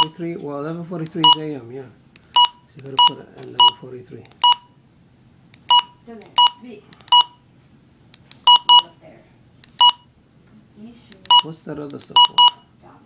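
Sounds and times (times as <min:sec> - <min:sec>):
short high key-press beeps: 0:02.3 - 0:03.8, 0:04.4 - 0:04.7, 0:05.6 - 0:07.4, 0:08.4 - 0:08.9, 0:09.7 - 0:10.1, 0:11.2 - 0:11.5, 0:12.1 - 0:12.7.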